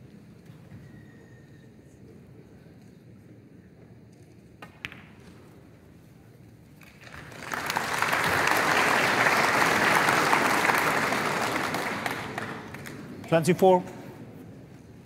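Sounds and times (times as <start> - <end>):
audience applauding: 6.8 - 13.2.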